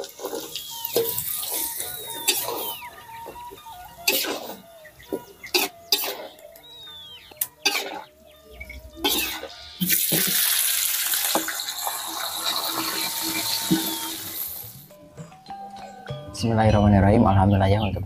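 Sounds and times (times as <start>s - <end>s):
fish sizzling in hot oil: 9.8s - 14.7s.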